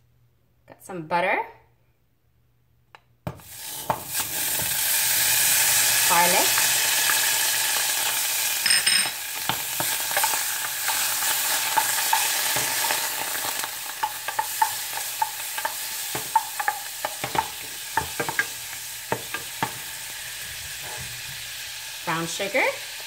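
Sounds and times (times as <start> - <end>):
butter sizzling in a saucepan: 3.3 - 23.0
wooden spoon knocking on pan: 14.0 - 19.8.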